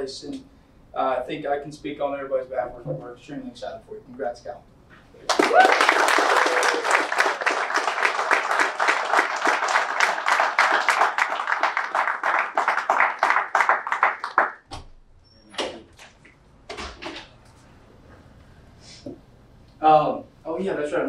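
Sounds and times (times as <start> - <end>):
people applauding: 5.2 - 14.6.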